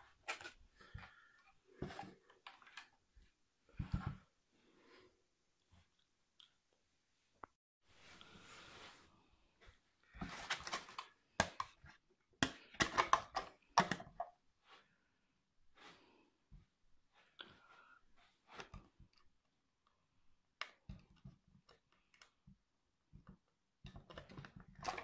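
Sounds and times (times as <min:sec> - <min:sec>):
plastic shell clattering and crinkling: 0:10.2 - 0:14.4, 0:23.8 - 0:25.0.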